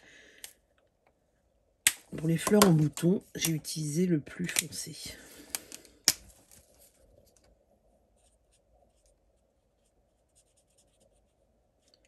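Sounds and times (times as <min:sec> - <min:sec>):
marker scratching on card: 0:09.8 - 0:11.3.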